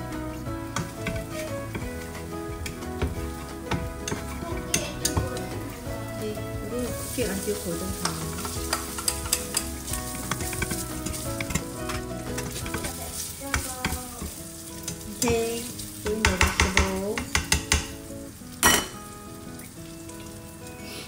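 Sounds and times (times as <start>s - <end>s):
meat sizzling in a pan: 0.0s - 21.0s
metal turner scraping a pan: 7.0s - 14.0s.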